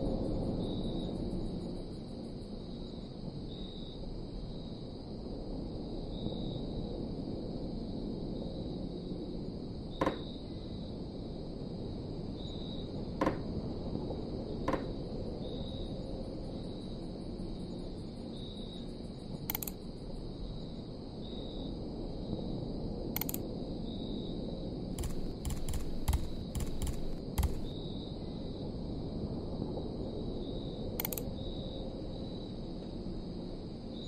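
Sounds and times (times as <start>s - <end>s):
computer mouse clicking: 19.5s - 19.8s, 23.2s - 23.4s, 25.0s - 27.7s, 31.0s - 31.3s
steady low hum: 25.0s - 27.8s.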